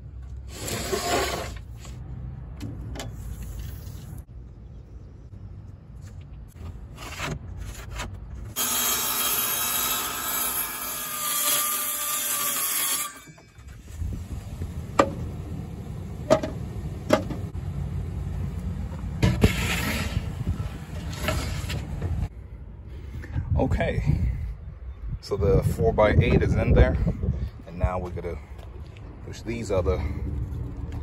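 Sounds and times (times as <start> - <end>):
circular saw cutting plywood: 8.5 - 13.5.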